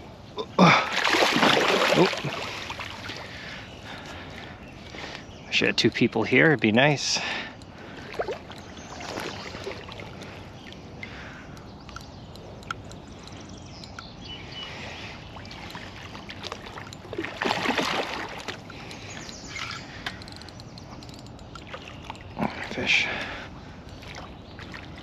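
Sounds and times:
fish splashing at water surface: 0.9 - 3.4, 15.4 - 19.1.

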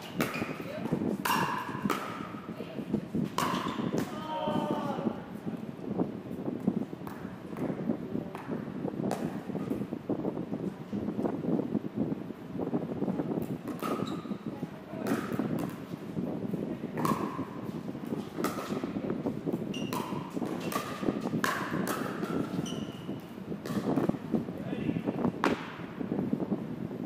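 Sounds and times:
paddles striking pickleball: 0.0 - 2.4, 3.2 - 4.2, 17.0 - 17.5, 18.4 - 18.9, 19.8 - 22.8, 25.4 - 25.8
wind noise on microphone: 0.0 - 27.0.

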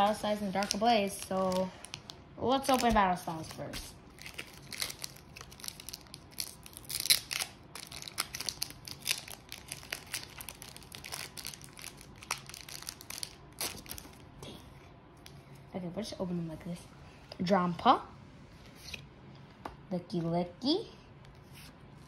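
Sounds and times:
foil wrapper crinkling and tearing: 0.0 - 14.3.

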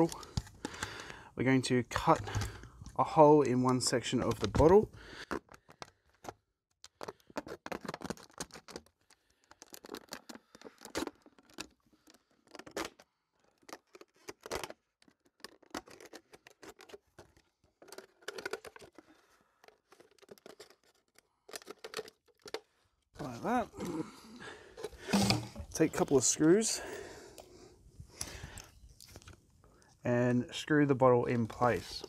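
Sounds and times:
knife cutting plastic bottle: 6.9 - 13.0, 23.8 - 26.0.

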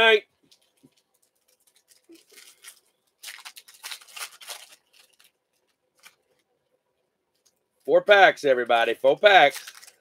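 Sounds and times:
foil wrapper tearing: 1.2 - 6.4, 9.3 - 10.0.

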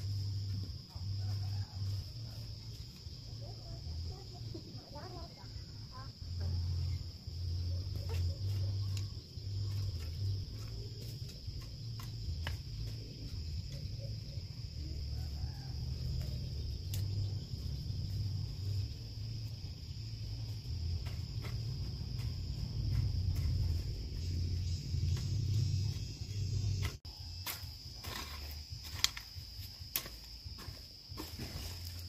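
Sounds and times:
high insect drone: 0.0 - 32.0
low stepping bass hum: 6.2 - 27.1.

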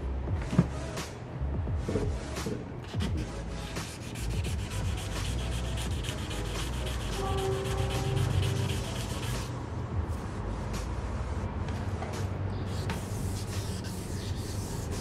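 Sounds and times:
sandpaper rubbing back and forth: 2.9 - 9.5, 12.7 - 15.0.

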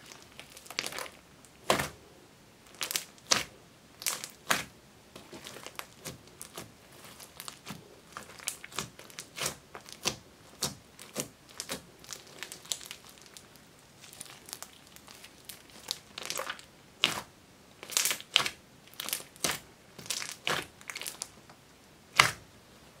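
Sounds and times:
slime popping and crackling: 0.0 - 2.0, 2.7 - 21.4.

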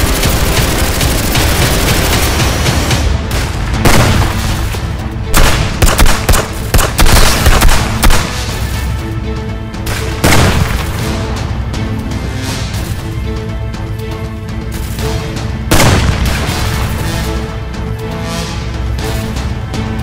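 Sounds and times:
action film music: 0.0 - 20.0
pistol gunshots: 5.3 - 8.4.

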